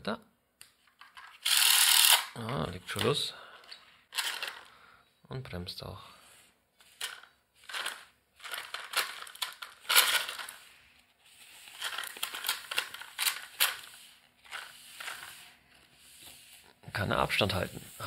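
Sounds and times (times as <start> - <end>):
paper card crinkling: 6.8 - 16.7.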